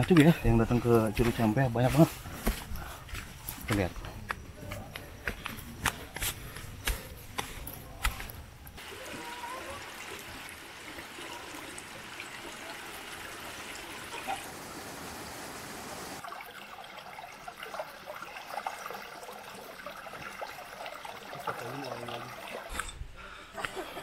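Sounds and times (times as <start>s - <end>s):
stream trickling over rocks: 8.8s - 22.8s.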